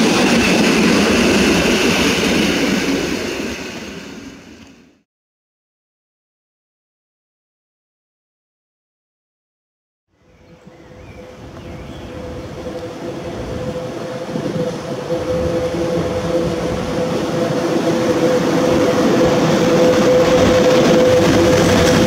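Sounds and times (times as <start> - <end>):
electric locomotive hum: 0.0 - 5.0, 10.2 - 22.0
train wheels rumbling on rails: 0.0 - 5.0, 10.5 - 22.0.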